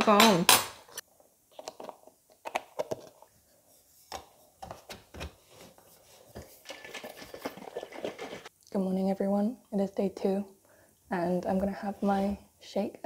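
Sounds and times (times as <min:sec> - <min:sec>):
shaker bottle being shaken: 0:06.4 - 0:08.5.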